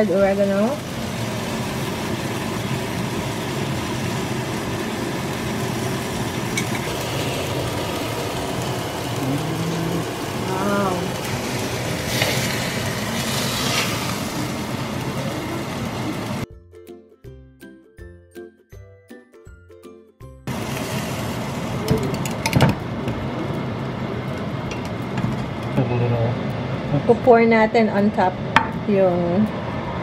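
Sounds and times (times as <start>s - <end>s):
chicken sizzling in skillet: 0.0s - 16.4s, 20.5s - 25.7s
tongs scraping skillet: 11.2s - 14.2s.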